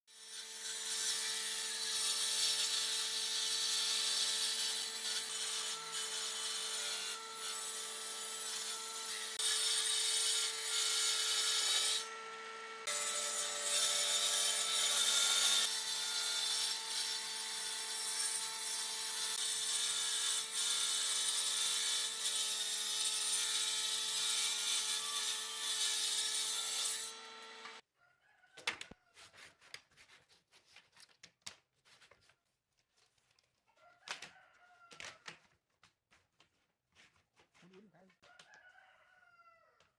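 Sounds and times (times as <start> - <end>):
power saw cutting wood: 0.1 - 27.8.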